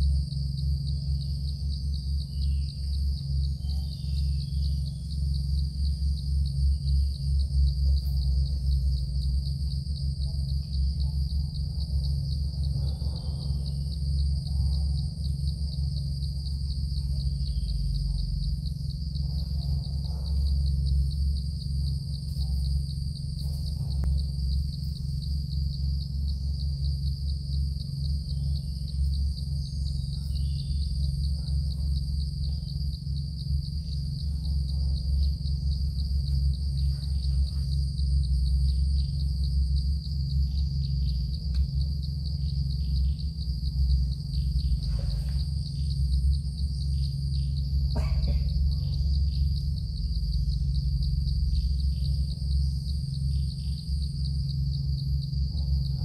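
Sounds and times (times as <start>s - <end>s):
insects trilling: 0.0s - 56.0s
steady low drone: 0.0s - 56.0s
faint bird chirps: 2.1s - 9.4s, 16.0s - 21.1s, 28.2s - 33.1s, 40.2s - 46.2s.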